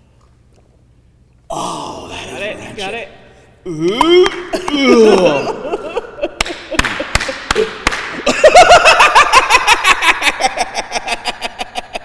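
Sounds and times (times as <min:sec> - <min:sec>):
person laughing: 0:03.7 - 0:12.0
hand claps: 0:03.9 - 0:05.4, 0:06.3 - 0:08.4.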